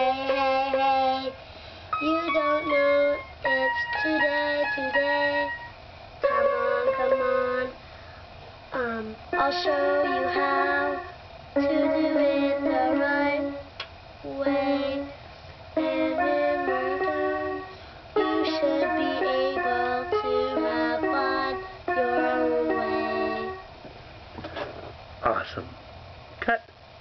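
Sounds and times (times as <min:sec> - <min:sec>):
toy electronic keyboard: 0:01.9 - 0:07.7, 0:15.8 - 0:23.7.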